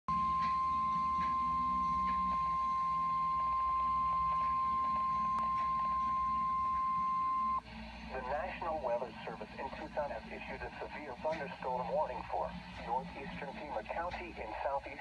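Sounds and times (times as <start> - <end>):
high-pitched warning alarm tone: 0.1 - 7.6.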